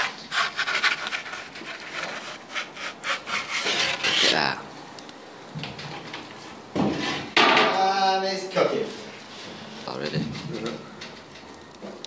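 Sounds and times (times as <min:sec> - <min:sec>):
rough scraping and rubbing strokes: 0:00.0 - 0:04.6.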